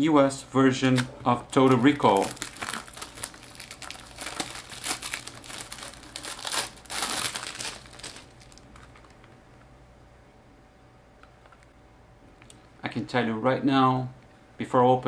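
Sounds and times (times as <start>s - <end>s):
plastic packaging crinkling: 0.8s - 9.4s.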